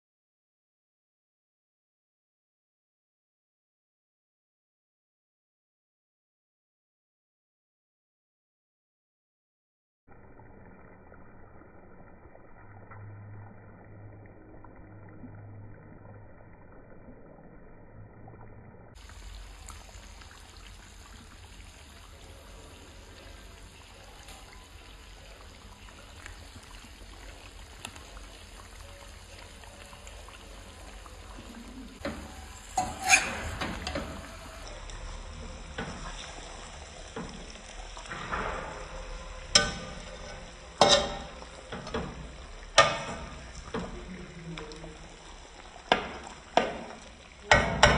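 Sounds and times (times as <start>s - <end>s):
curry sizzling in a pan: 19.0s - 47.9s
spatula knocking on pan: 47.5s - 47.9s.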